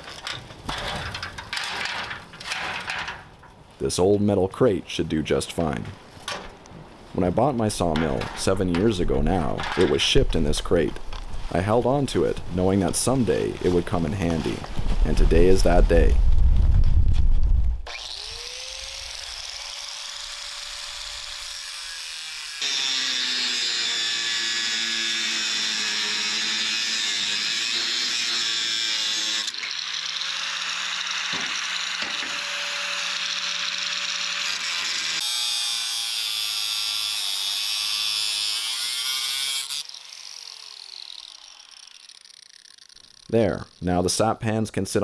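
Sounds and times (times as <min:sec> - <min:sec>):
angle grinder cutting metal: 0:17.9 - 0:44.2.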